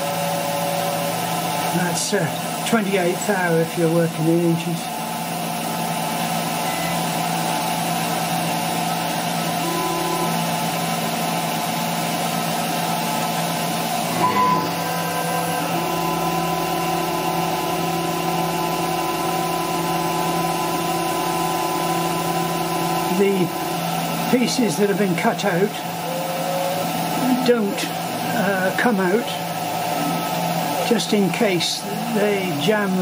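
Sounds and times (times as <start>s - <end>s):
router spindle running: 0.0s - 33.0s
steady tone: 14.1s - 16.5s.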